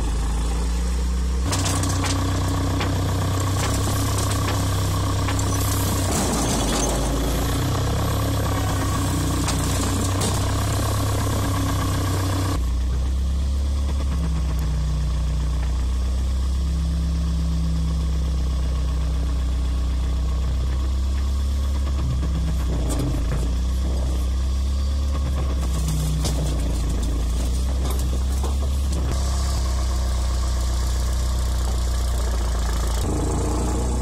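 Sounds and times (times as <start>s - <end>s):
hydraulics humming: 0.0s - 13.1s, 20.7s - 34.0s
excavator diesel engine: 0.0s - 34.0s.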